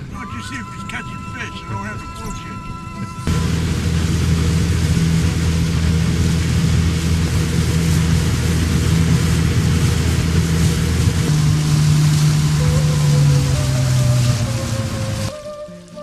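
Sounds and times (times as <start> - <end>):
outboard motor droning: 0.0 - 16.0
wind and water hiss: 3.3 - 16.0.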